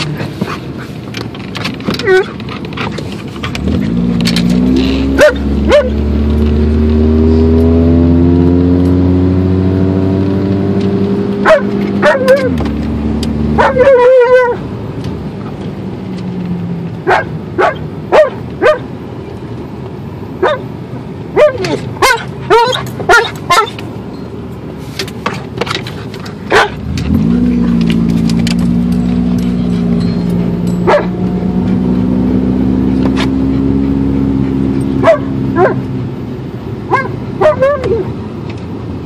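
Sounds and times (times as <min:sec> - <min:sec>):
car engine accelerating: 0:00.0 - 0:39.0
dog barking: 0:05.2 - 0:06.0, 0:11.4 - 0:12.6, 0:13.5 - 0:14.6, 0:17.0 - 0:18.9, 0:20.4 - 0:20.7, 0:21.4 - 0:23.8, 0:26.5 - 0:26.8, 0:30.8 - 0:31.2, 0:35.0 - 0:35.9, 0:36.9 - 0:38.1.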